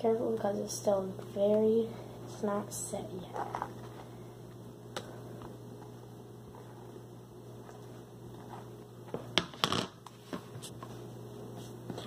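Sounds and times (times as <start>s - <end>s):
low steady hum: 0.0s - 12.0s
plastic bowl crackles and knocks: 9.1s - 10.5s.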